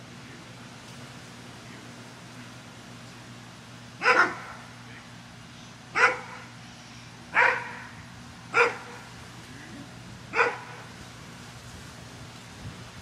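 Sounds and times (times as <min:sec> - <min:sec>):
dog barking: 0:04.0 - 0:04.6, 0:06.0 - 0:06.5, 0:07.4 - 0:07.9, 0:08.5 - 0:09.0, 0:10.3 - 0:10.8.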